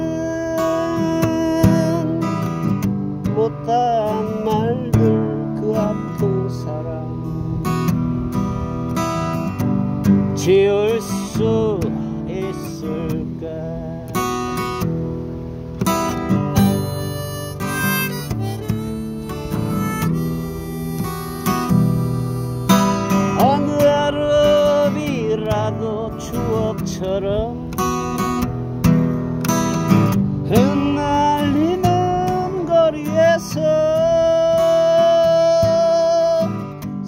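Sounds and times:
acoustic guitar strumming chords: 0.0s - 37.0s
harmonica melody: 16.0s - 24.8s.

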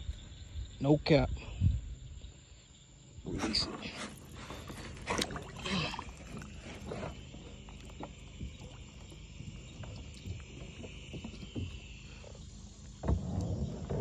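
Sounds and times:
high chirring of pond wildlife: 0.0s - 14.0s
water sloshing and splashing: 3.3s - 14.0s.

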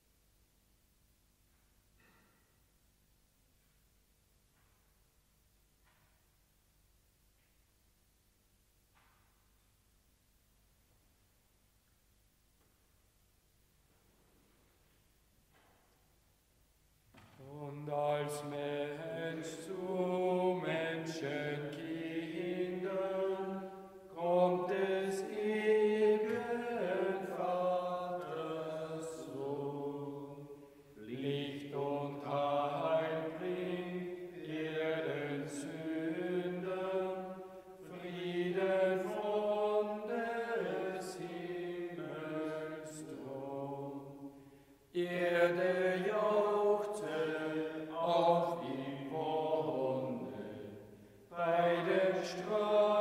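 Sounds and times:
congregation singing a hymn: 17.2s - 53.0s.

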